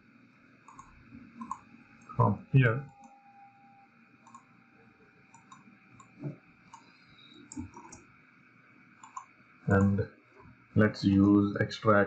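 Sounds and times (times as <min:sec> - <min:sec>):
faint computer mouse clicks: 0:00.7 - 0:01.7, 0:04.2 - 0:04.4, 0:05.3 - 0:08.0, 0:09.0 - 0:09.9.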